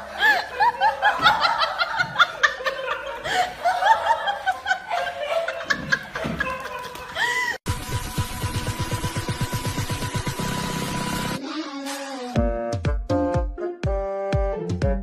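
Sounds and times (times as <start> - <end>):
person laughing hard: 0.0 - 7.6.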